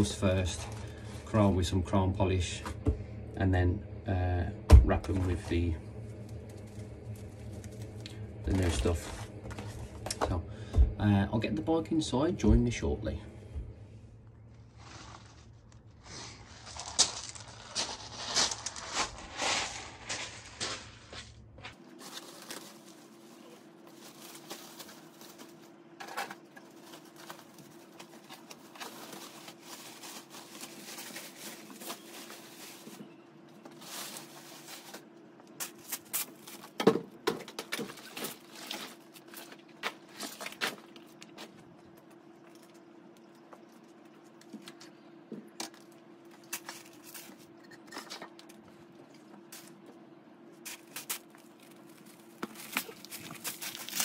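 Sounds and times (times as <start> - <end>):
low hum: 0.0 - 37.2.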